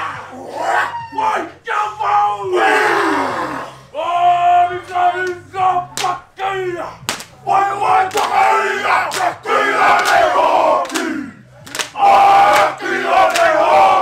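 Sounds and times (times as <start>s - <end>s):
men chanting in unison: 1.9s - 14.0s
sharp slaps: 5.2s - 6.2s, 7.0s - 7.4s, 8.1s - 8.4s, 9.1s - 9.4s, 10.0s - 10.2s, 10.8s - 13.6s.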